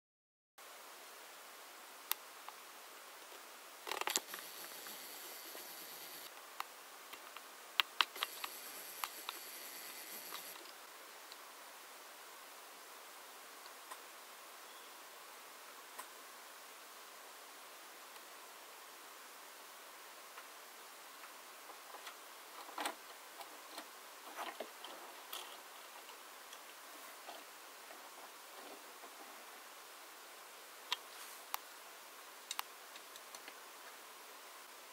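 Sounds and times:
steady hiss: 0.6 - 34.9
camera zoom motor whine: 4.2 - 6.3, 8.2 - 10.6.

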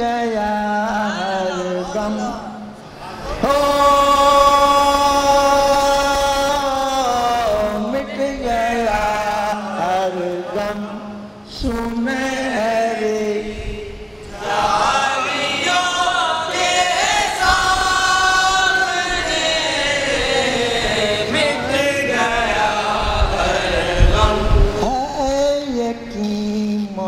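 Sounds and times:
men singing unaccompanied: 0.0 - 27.0.

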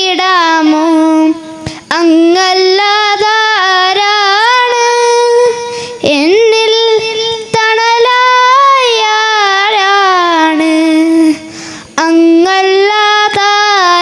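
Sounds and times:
boy singing into a microphone: 0.0 - 14.0
short breaths: 1.6 - 1.9, 5.6 - 6.0, 11.4 - 12.0.

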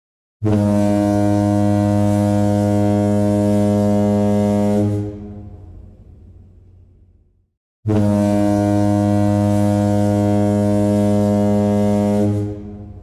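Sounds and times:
ship's horn deep blast: 0.4 - 6.4, 7.8 - 13.0.

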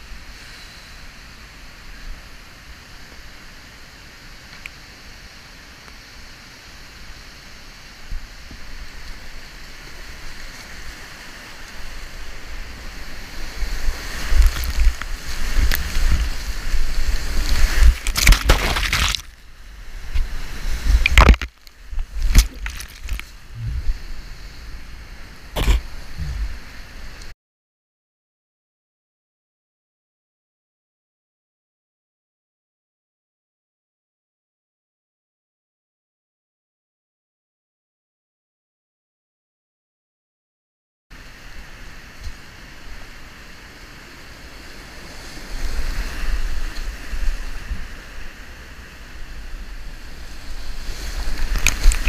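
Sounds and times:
river rushing: 0.1 - 27.3, 41.2 - 52.0
whitewater crashing and splashing: 7.6 - 27.2, 41.2 - 52.0.

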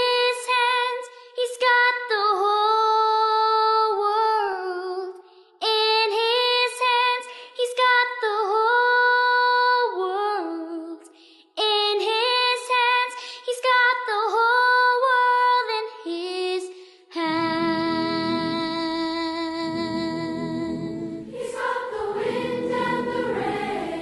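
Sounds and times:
girl singing unaccompanied: 0.0 - 24.0
singer breathing: 11.1 - 11.5, 13.2 - 13.5, 16.7 - 17.1.

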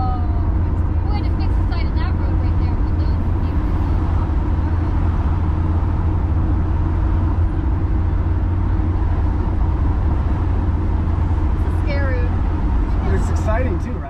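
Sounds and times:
van engine and road rumble: 0.0 - 14.0.

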